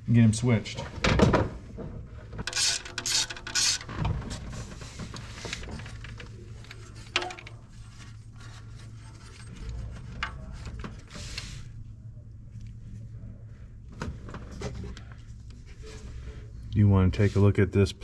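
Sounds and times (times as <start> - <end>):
socket wrench unscrewing: 2.5 - 3.9.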